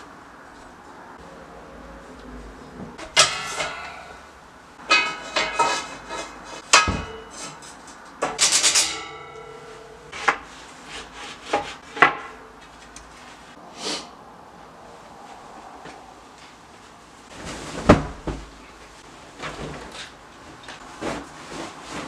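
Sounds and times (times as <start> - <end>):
steel bed-frame parts clanking: 2.9 - 10.7.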